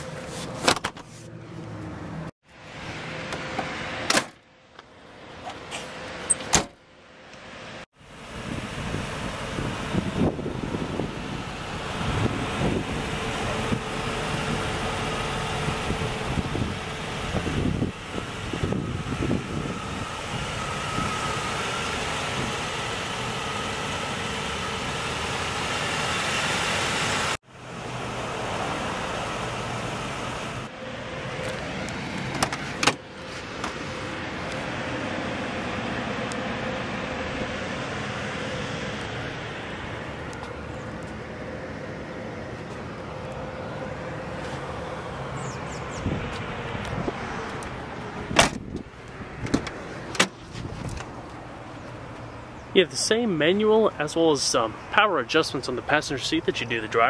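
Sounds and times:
car door latch clicking: 48.4 - 48.8.

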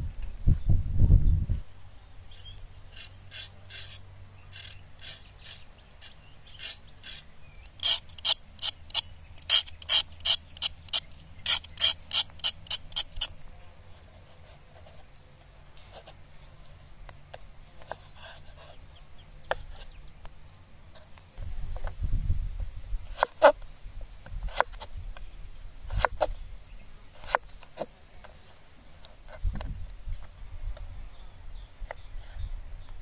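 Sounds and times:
vegetable peeler scraping carrot: 2.9 - 13.4.

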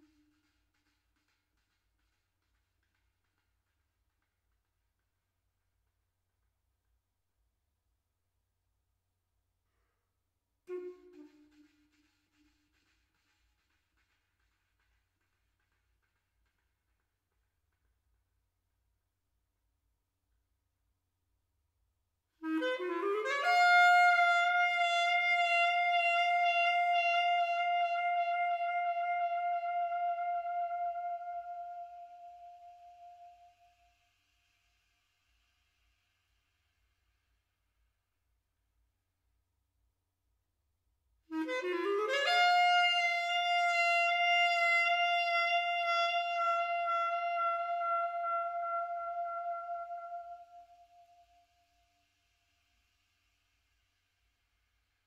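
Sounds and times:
solo clarinet: 10.7 - 12.7, 22.4 - 34.0, 41.3 - 52.0
clarinet note with vibrato: 22.4 - 33.7.

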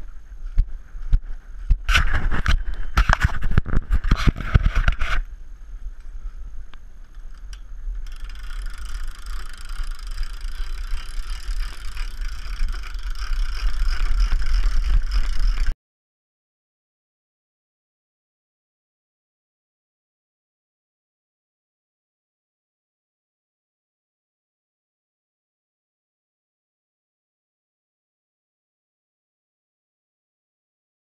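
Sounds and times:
wind buffeting microphone: 0.0 - 15.7.

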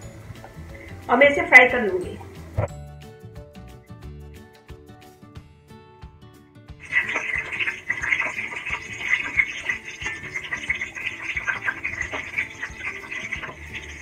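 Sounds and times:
chillies sizzling in hot oil: 0.0 - 2.6, 6.8 - 14.0.

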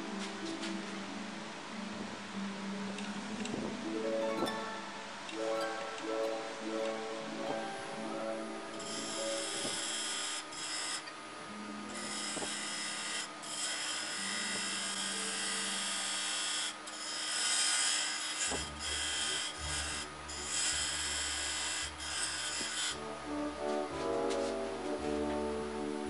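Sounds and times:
lathe tool scraping: 8.7 - 26.0.

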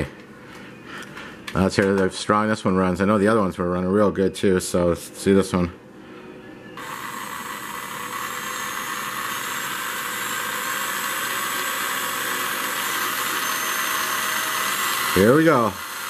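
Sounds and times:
slot car motor whirring: 6.8 - 16.0.

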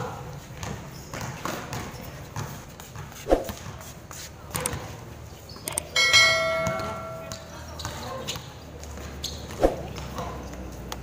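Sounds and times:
basketball bouncing on concrete: 0.5 - 5.0, 6.2 - 11.0
ball clanging on metal rim: 6.0 - 7.6
players' footsteps: 6.2 - 11.0.

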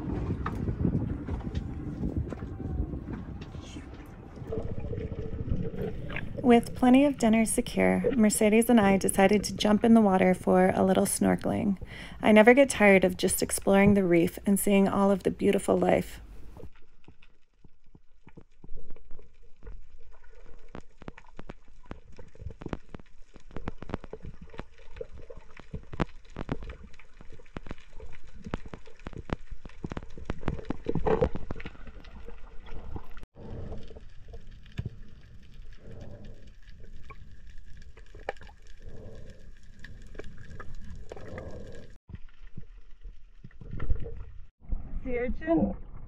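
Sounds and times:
sharp clicks and crackles: 16.7 - 44.3.

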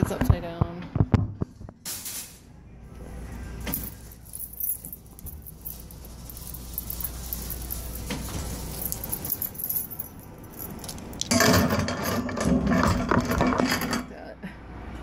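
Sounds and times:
metallic jingling and clinking: 3.7 - 12.4.

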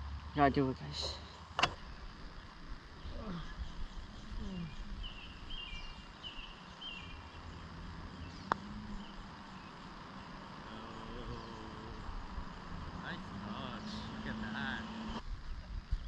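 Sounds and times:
steady low rumble: 0.0 - 16.0
bird chirping: 1.1 - 15.2
putter striking golf ball: 1.6 - 1.8, 8.4 - 9.2.

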